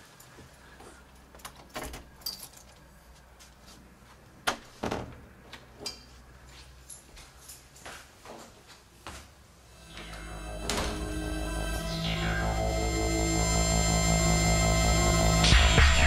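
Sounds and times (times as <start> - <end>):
keys jangling: 1.4 - 2.9, 6.8 - 7.9.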